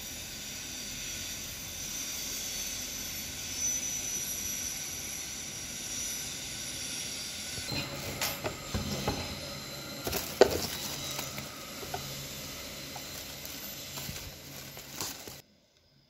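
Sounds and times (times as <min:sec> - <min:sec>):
plastic and paper crinkling: 0:07.8 - 0:15.4.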